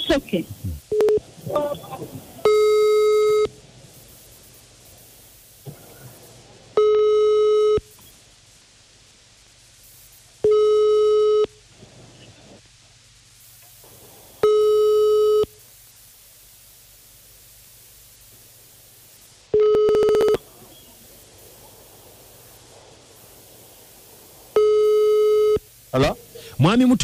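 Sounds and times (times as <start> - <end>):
telephone ringback tone: 14.4 - 15.5, 19.6 - 20.4, 24.6 - 25.6.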